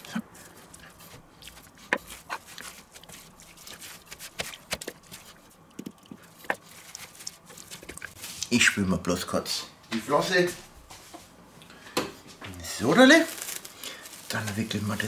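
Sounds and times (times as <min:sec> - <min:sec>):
cling film crinkling: 0:06.3 - 0:08.4, 0:12.8 - 0:15.0.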